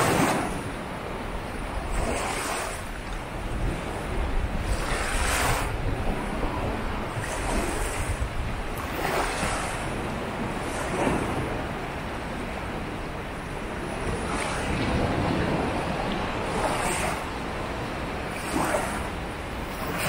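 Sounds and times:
sea waves breaking on beach: 0.0s - 20.0s.

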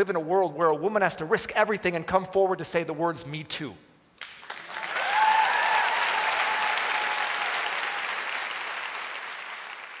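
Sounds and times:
audience applause: 4.4s - 10.0s.

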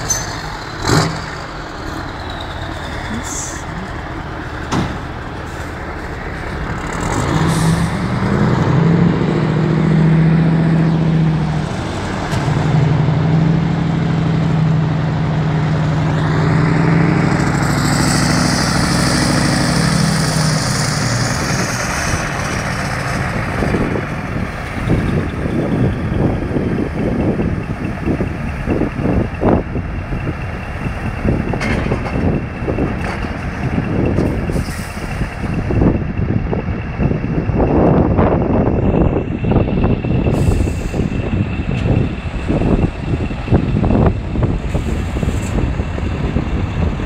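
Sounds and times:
truck diesel engine pulling: 0.0s - 47.0s
air brakes hissing: 34.5s - 35.2s, 40.3s - 41.2s.

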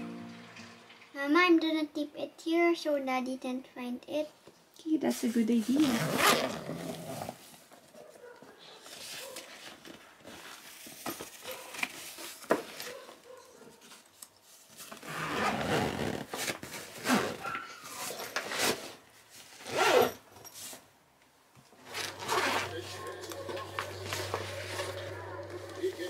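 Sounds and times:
zipper being pulled: 5.6s - 7.6s, 14.9s - 20.4s, 21.8s - 25.1s
backpack fabric rustling: 5.7s - 7.6s, 14.9s - 20.7s, 21.8s - 23.0s.

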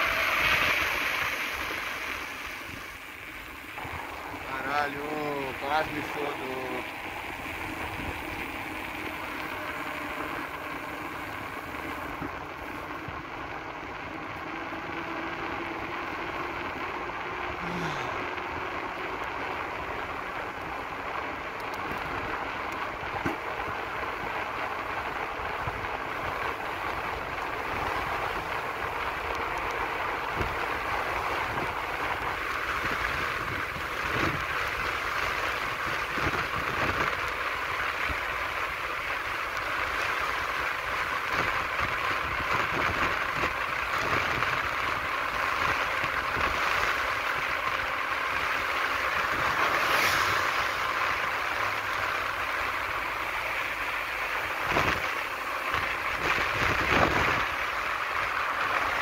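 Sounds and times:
wheels rolling over asphalt: 0.0s - 59.0s
wind on microphone: 32.7s - 37.2s, 55.7s - 57.6s.

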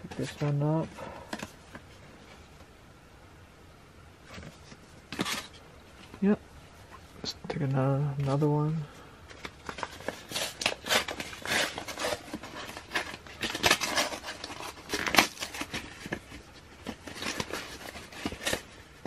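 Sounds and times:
packaging crinkling and rustling: 4.2s - 6.4s, 9.2s - 19.0s.

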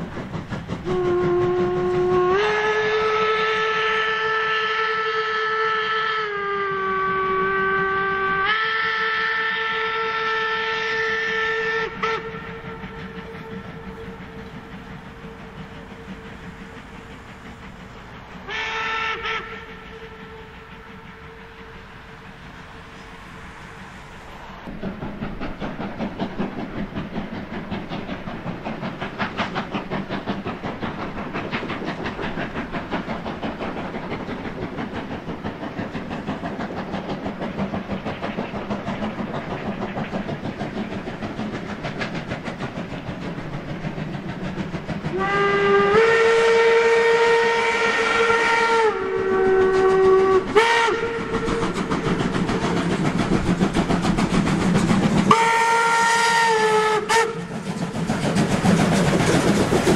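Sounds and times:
steam locomotive exhaust beat: 0.0s - 59.9s
steam whistle blasts: 0.8s - 14.4s, 18.4s - 23.0s, 45.1s - 51.7s, 55.3s - 57.5s.

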